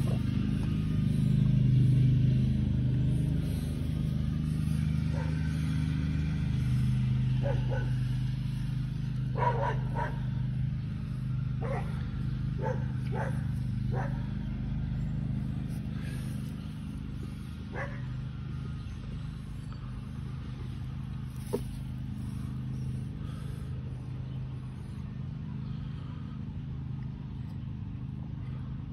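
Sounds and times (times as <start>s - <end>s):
low mechanical hum: 0.0s - 28.9s
dog barking: 5.1s - 5.4s, 7.4s - 8.0s, 9.4s - 10.3s, 11.6s - 12.0s, 12.6s - 14.3s, 17.7s - 18.1s.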